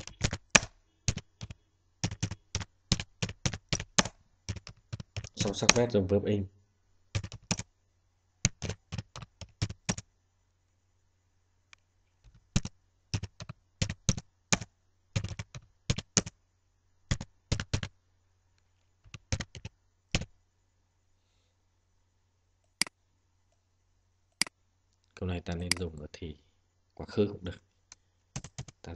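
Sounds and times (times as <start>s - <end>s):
keyboard typing: 0.0s - 5.9s, 7.1s - 7.7s, 8.4s - 10.0s, 12.2s - 16.4s, 17.1s - 17.9s, 19.1s - 20.3s, 28.3s - 28.9s.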